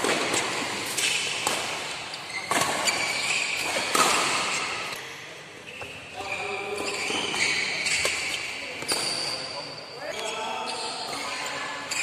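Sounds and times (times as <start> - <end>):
badminton rackets hitting shuttlecock: 0.0 - 5.0.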